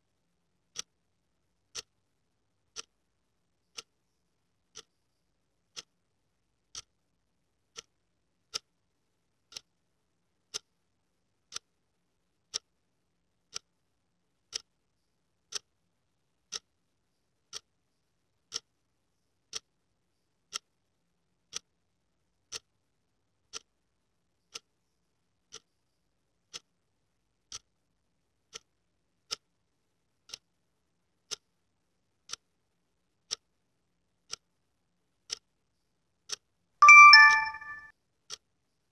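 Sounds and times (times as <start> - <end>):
clock ticking: 1.7 - 2.0, 2.7 - 3.0, 3.7 - 3.9, 4.7 - 4.9, 5.7 - 6.0, 6.6 - 6.9, 7.7 - 7.9, 9.5 - 9.7, 11.5 - 11.7, 12.5 - 12.7, 14.5 - 14.8, 15.5 - 15.7, 17.5 - 17.7, 23.5 - 23.7, 36.3 - 37.8.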